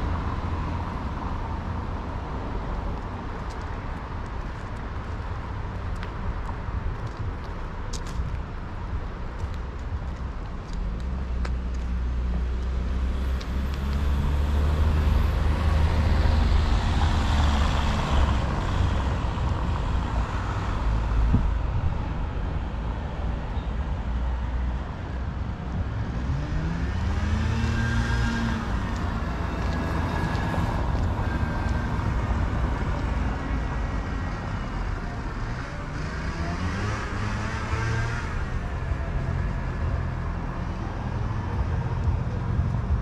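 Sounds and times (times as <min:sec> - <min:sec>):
vehicle accelerating: 0:11.0 - 0:21.5, 0:25.8 - 0:43.0.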